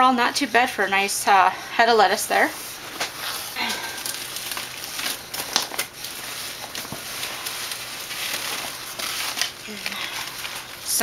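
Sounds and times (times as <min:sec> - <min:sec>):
paper rustling and crinkling: 0:02.4 - 0:11.0.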